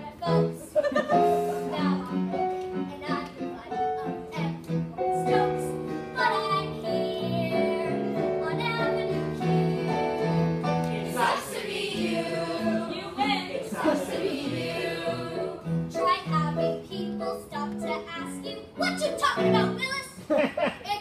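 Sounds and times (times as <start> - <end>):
children singing: 8.6 - 15.7.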